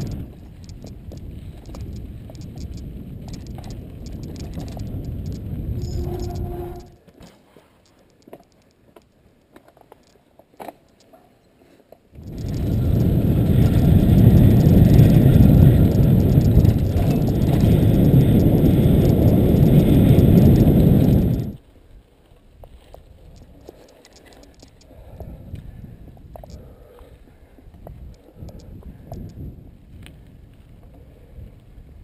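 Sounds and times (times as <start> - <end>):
wind rushing over microphone: 0.0 - 7.0, 12.2 - 21.6, 27.6 - 32.0
bike clicks and rattles: 0.0 - 11.3, 12.2 - 32.0.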